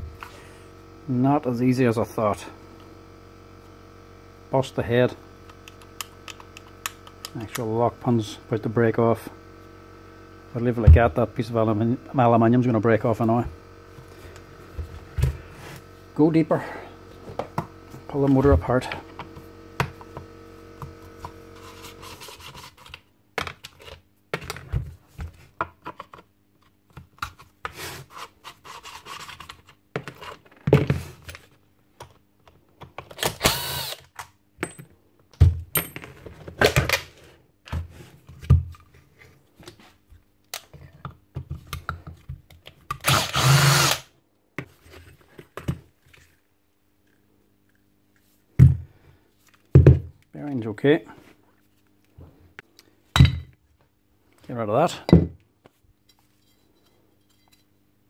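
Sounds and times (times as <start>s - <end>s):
power drill running: 33.2s - 34.1s, 43.0s - 44.1s.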